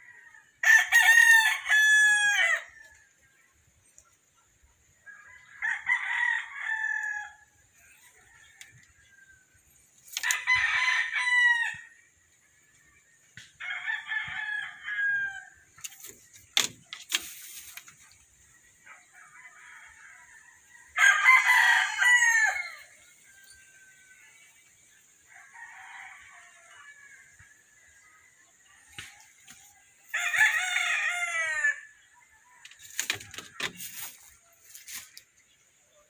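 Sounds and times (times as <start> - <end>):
rooster crowing: 0.0 - 3.0, 5.1 - 9.5, 13.6 - 15.6, 19.3 - 24.2, 30.1 - 31.9.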